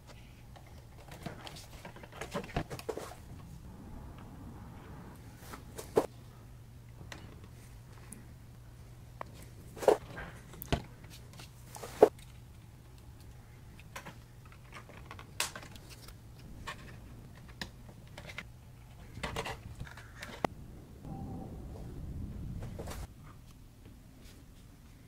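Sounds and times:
low hum: 3.3 - 10.6, 20.5 - 24.2
plastic parts clicking and knocking: 12.1 - 20.5.

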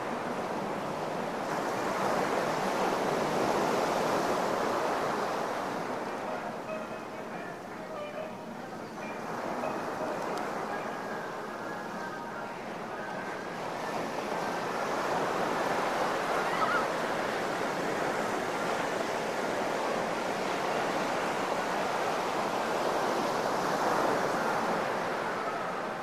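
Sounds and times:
ocean waves breaking on beach: 0.0 - 26.0.

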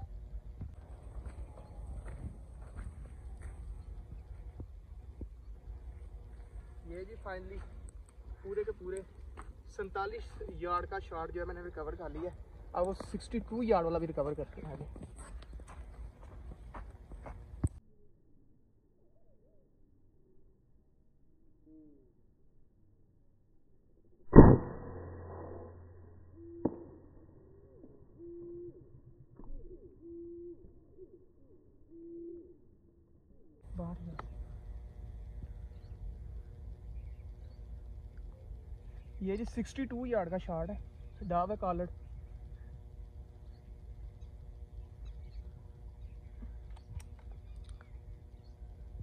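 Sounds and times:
wind rumble on microphone: 0.0 - 9.4, 33.6 - 49.0
air rifle shot: 24.3 - 25.4.

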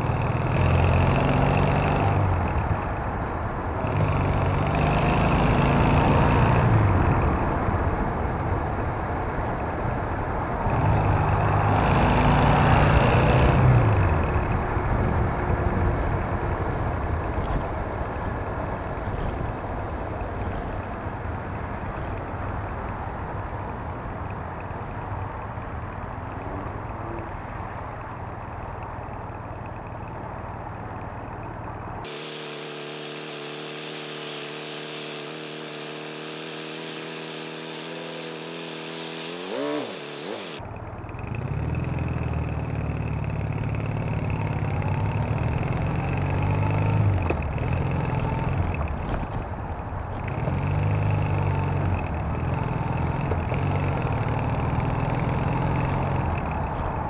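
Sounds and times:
motorcycle engine accelerating: 0.0 - 8.6, 10.5 - 20.8, 32.1 - 57.0
wind and road noise: 0.0 - 57.0.

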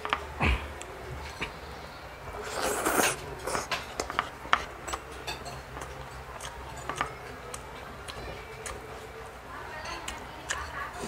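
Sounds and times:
utensils clicking on a plate: 3.4 - 9.1.

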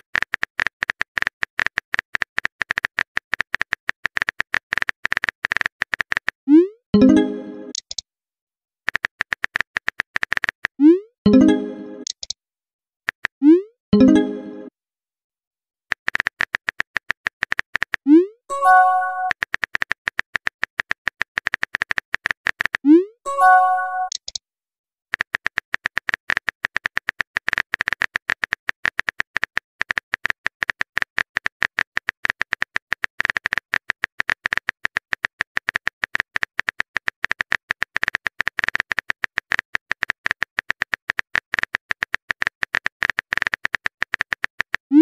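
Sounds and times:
keyboard typing clicks: 7.0 - 8.0, 8.9 - 12.4, 18.6 - 20.5, 21.2 - 24.4.

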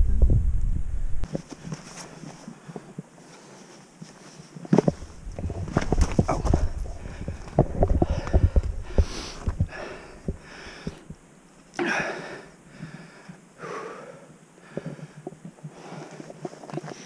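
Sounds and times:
boots and hands clicking on rock: 1.2 - 11.9, 14.7 - 17.0
heavy breathing: 5.0 - 11.2, 11.8 - 17.0.

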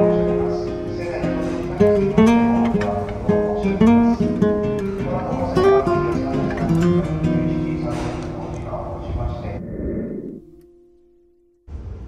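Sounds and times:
acoustic guitar playing: 0.0 - 8.9.

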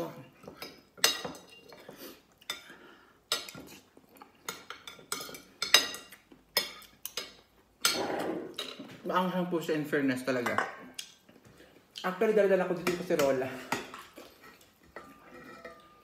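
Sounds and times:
cutlery clinking on ceramic plate: 14.8 - 16.0.

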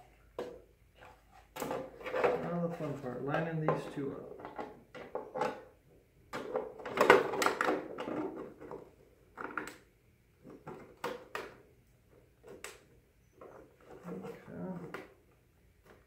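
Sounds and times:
plastic creaking and clicking: 9.4 - 9.8
plastic rubbing: 12.2 - 15.2.

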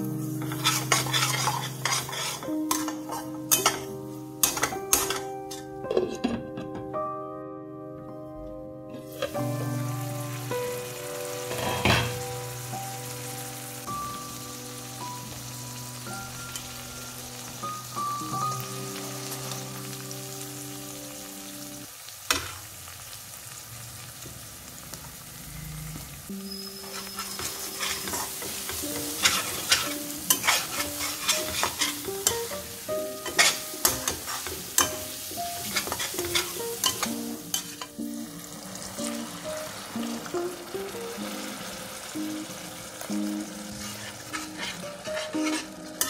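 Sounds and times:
spices sizzling in oil: 0.0 - 6.1, 9.0 - 46.0
metal spatula scraping pan: 0.4 - 6.4, 11.5 - 12.2, 26.3 - 38.0, 43.6 - 46.0.

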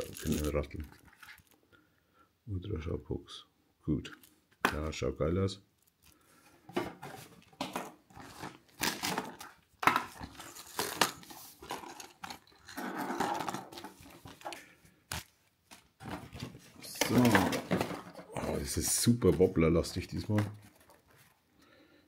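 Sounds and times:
plastic packs clicking and crinkling: 0.0 - 1.6, 5.8 - 21.4.

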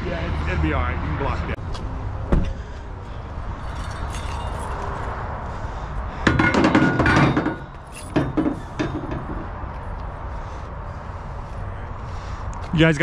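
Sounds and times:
metal hardware clanking: 6.3 - 9.5
steady low rumble: 7.4 - 13.0.

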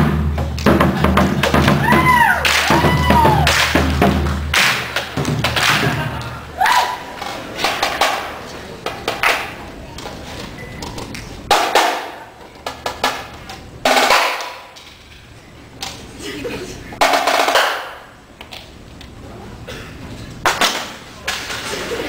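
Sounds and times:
marching snare drums: 0.0 - 6.2, 7.6 - 8.4, 11.5 - 12.2, 12.8 - 14.7, 17.0 - 18.0.

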